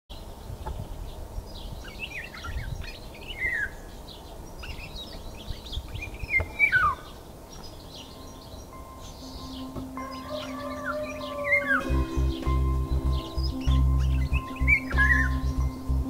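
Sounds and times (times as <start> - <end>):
small birds chirping: 0.1 - 16.0
bird whistling downward phrase: 9.4 - 15.9.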